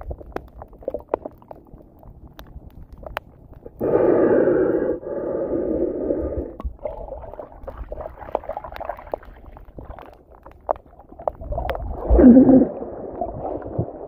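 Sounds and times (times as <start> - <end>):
underwater clicks and crackles: 0.0 - 14.0
breathing through a snorkel: 3.8 - 6.6.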